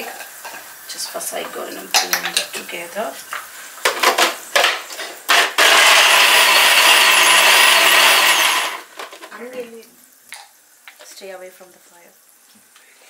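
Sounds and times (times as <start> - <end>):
blender motor whining: 5.3 - 8.9.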